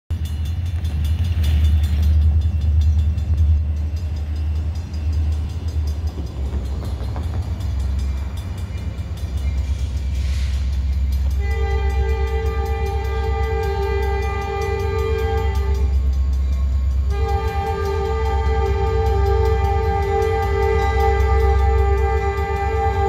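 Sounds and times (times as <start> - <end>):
diesel locomotives rumbling: 0.1 - 23.0
locomotive air horn chord: 9.8 - 23.0.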